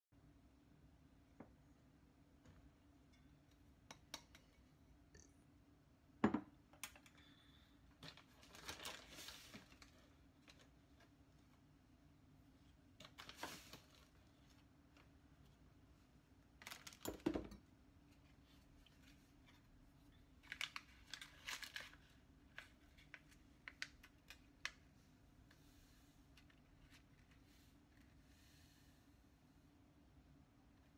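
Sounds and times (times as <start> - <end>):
faint low hum: 0.2 - 30.9
foil packet crinkling: 8.0 - 10.7, 16.6 - 17.1, 20.4 - 24.8.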